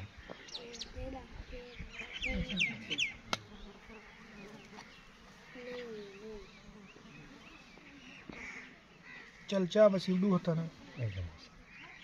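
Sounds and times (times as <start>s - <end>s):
flying insect buzzing: 0.0s - 9.5s.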